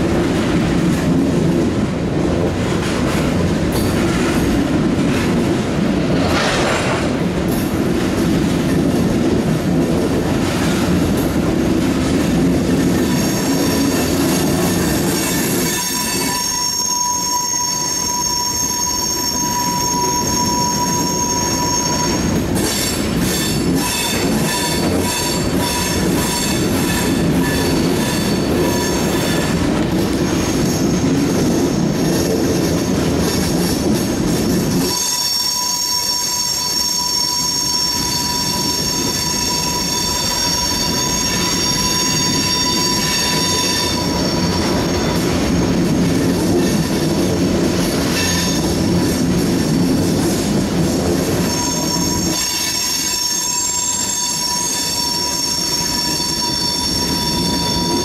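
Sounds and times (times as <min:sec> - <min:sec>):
train wheels rumbling: 0:00.0 - 0:58.0
train wheel squeal: 0:06.1 - 0:58.0.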